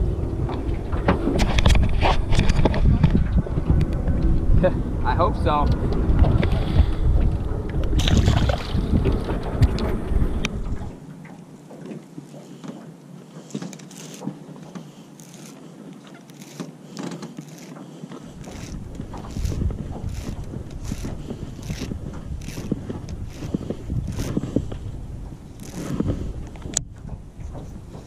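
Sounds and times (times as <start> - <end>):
wind buffeting microphone: 0.0 - 11.1, 17.4 - 28.0
fishing reel clicks and taps: 16.3 - 17.8, 18.4 - 24.4.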